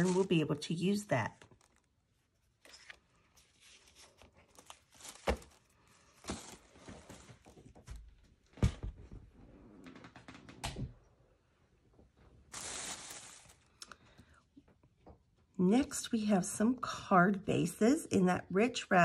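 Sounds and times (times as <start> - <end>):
paper envelopes rustling: 0.0 - 7.8, 12.5 - 13.8.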